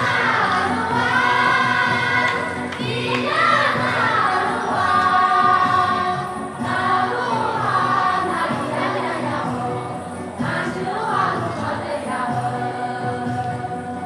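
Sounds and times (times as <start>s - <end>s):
group singing folk song: 0.0s - 14.0s.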